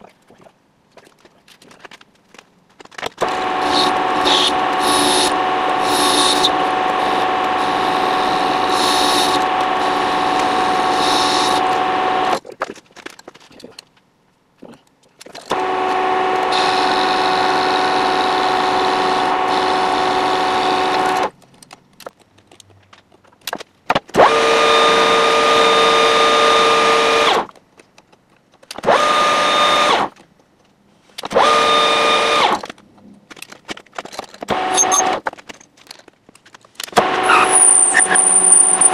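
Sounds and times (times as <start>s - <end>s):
metal lathe whining: 3.3s - 12.4s, 15.5s - 21.3s.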